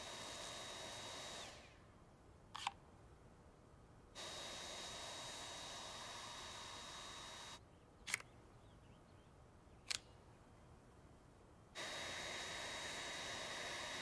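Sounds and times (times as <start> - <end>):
cordless vacuum whirring: 0.0 - 1.8, 4.2 - 7.6, 11.8 - 14.0
plastic clicks: 2.5 - 2.8, 8.1 - 8.4, 9.8 - 10.2.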